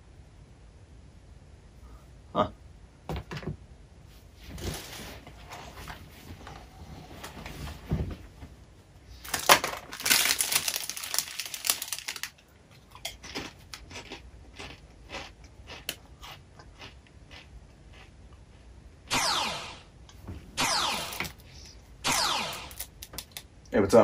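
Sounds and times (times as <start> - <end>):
plastic bag crinkling: 9.2 - 12.4
chips being chewed: 9.3 - 18.7.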